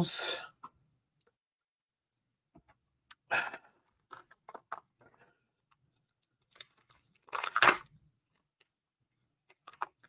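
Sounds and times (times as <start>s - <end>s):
wrapper crinkling and tearing: 6.5s - 7.9s.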